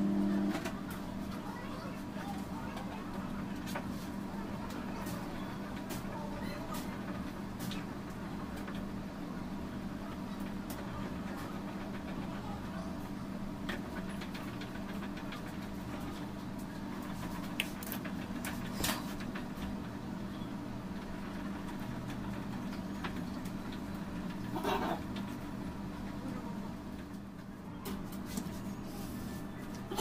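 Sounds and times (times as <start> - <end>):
low mechanical hum: 0.0 - 30.0
faint sharp clicks and taps: 16.6 - 19.7.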